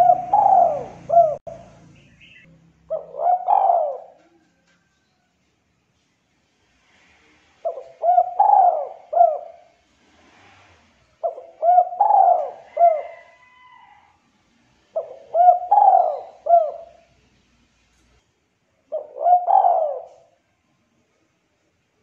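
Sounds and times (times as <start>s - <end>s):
dove cooing: 0.0s - 4.6s, 7.6s - 9.8s, 11.2s - 13.9s, 14.9s - 17.1s, 18.8s - 20.4s.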